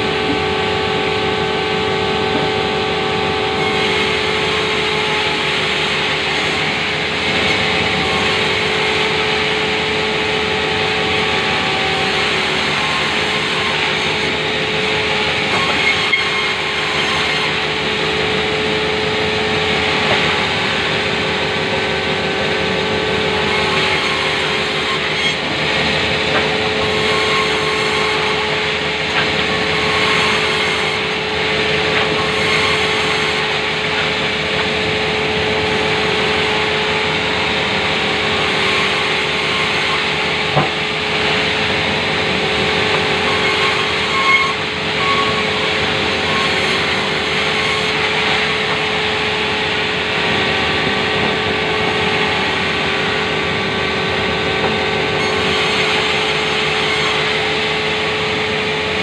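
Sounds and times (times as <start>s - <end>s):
band saw cutting timber: 0.0s - 59.0s.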